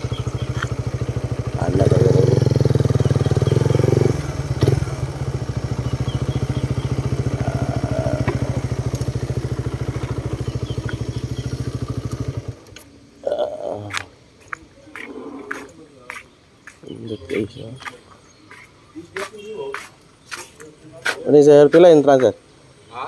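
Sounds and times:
motorcycle engine idling: 0.0 - 13.8.

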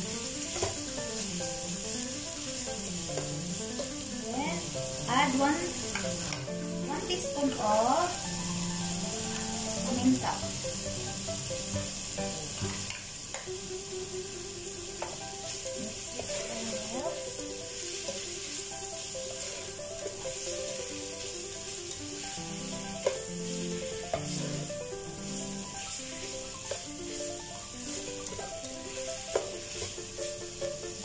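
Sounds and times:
soft background music: 0.0 - 31.0
vegetables sizzling in oil: 0.0 - 31.0
spatula scraping and knocking pan: 0.5 - 0.9, 3.0 - 4.0, 15.0 - 31.0.

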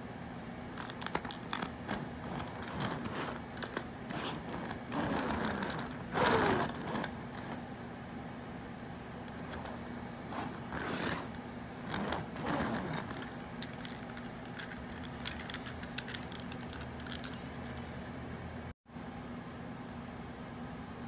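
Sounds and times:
steady low hum: 0.0 - 21.0
toy car rolling on hard surface: 0.8 - 7.6, 9.3 - 17.4.

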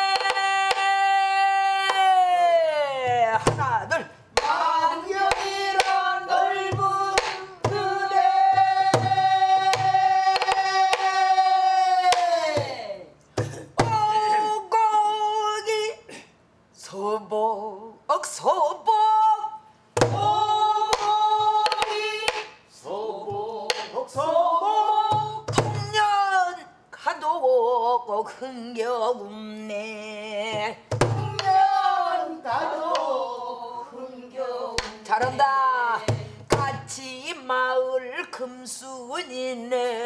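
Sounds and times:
woman singing: 0.0 - 13.0, 13.7 - 16.0, 16.8 - 40.0
barrel drum thumps: 6.7 - 11.1, 30.6 - 31.6.

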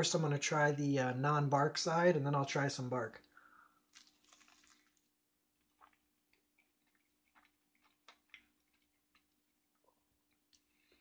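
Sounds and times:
man chewing: 3.8 - 11.0.

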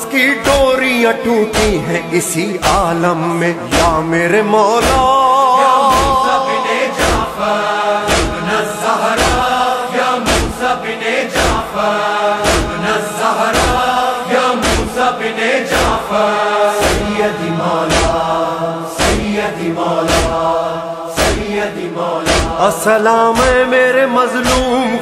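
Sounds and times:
group of voices chanting: 4.8 - 23.7.

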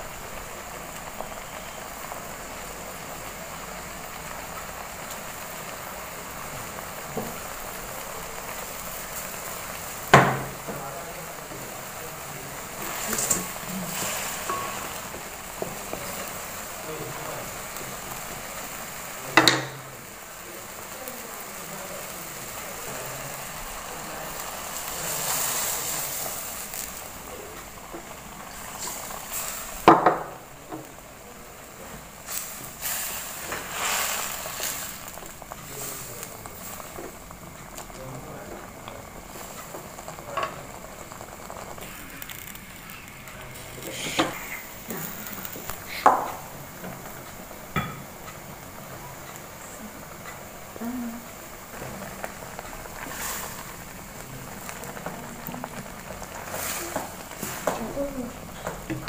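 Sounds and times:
noodles sizzling and bubbling in wok: 0.0 - 59.0
wooden spatula knocking on pan: 10.1 - 10.8, 19.4 - 19.8, 29.9 - 30.9, 46.0 - 46.4.

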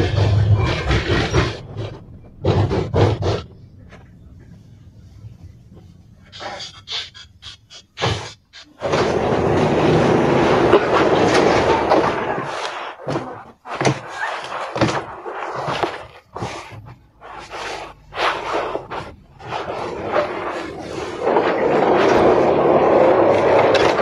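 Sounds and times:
loud rushing noise: 8.8 - 12.7.

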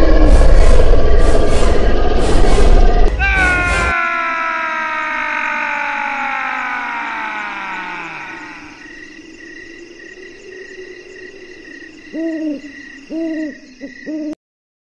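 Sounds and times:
steady low drone: 0.0 - 8.7
hooting calls: 3.1 - 14.4.

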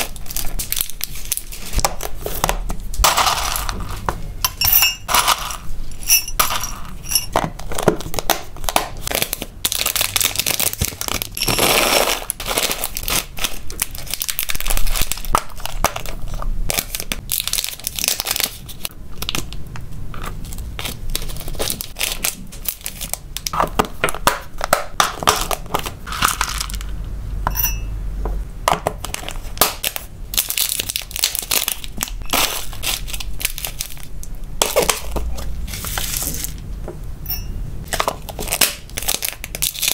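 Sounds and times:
plastic bag crinkling: 0.0 - 2.4, 9.0 - 19.4, 20.4 - 23.6, 29.1 - 35.1, 37.9 - 39.9
pellets rattling in plastic box: 3.0 - 4.0, 5.1 - 5.7.

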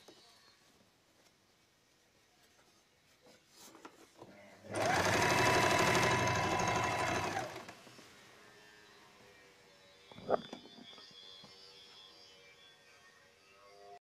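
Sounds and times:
sewing machine stitching: 4.7 - 7.8.

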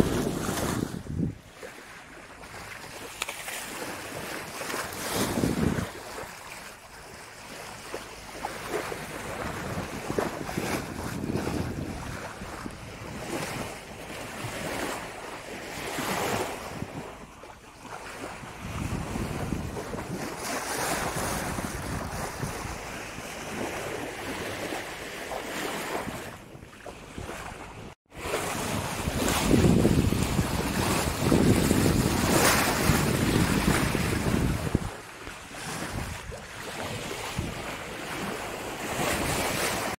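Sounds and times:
wind buffeting microphone: 0.0 - 1.7, 3.8 - 6.4, 7.7 - 39.9
water splashing against boat hull: 0.0 - 39.9.

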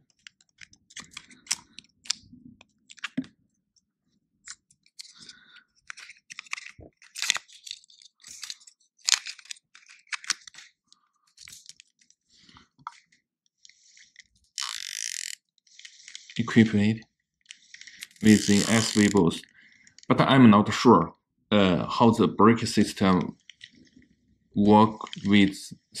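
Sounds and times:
fishing reel clicks and taps: 14.6 - 15.4.

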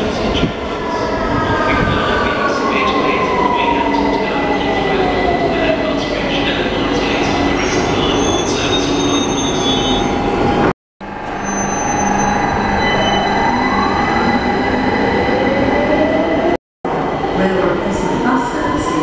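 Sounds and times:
thin high squeal: 11.3 - 13.4.

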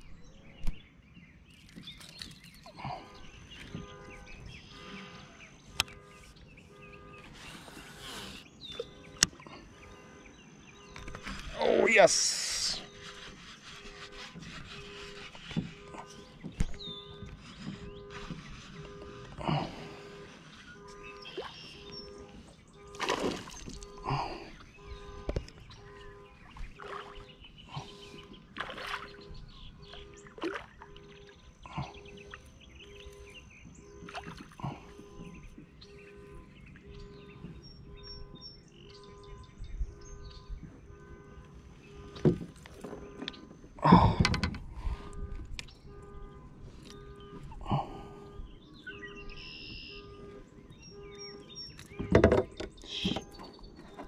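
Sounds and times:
birds chirping faintly: 0.0 - 54.0
knocks and splashes of fish: 22.9 - 23.9, 26.6 - 29.3, 29.9 - 31.0, 34.0 - 34.9.

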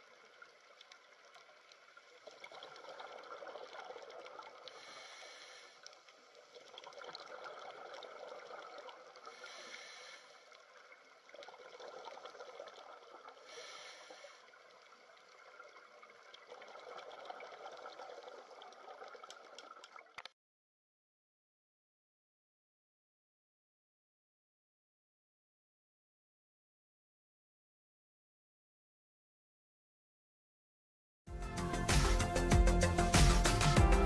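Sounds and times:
underwater trickling bubbling hiss: 0.0 - 20.0.

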